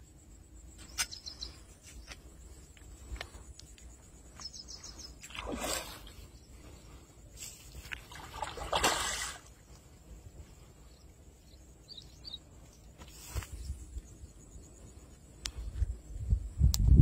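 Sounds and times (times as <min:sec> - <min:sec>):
bird chirping: 0:00.7 - 0:02.2, 0:03.9 - 0:05.4, 0:10.5 - 0:14.8
fish splashing in water: 0:05.2 - 0:06.2, 0:07.9 - 0:09.5.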